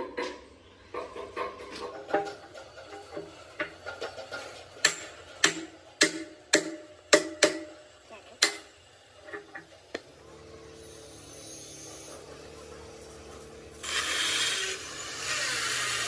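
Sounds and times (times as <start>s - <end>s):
hammer striking metal: 4.8s - 8.7s.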